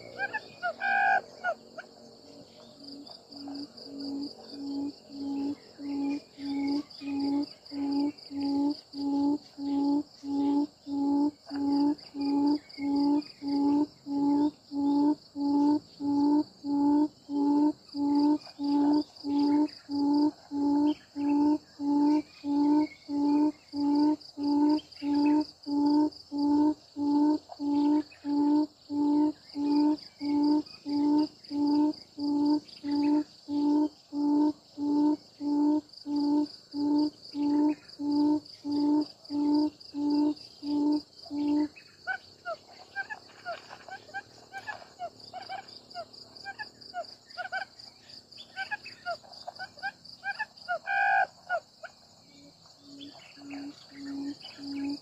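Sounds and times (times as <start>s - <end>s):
quail hooting calls: 0.0s - 1.9s, 26.4s - 45.7s, 48.5s - 51.6s
insects buzzing: 0.0s - 55.0s.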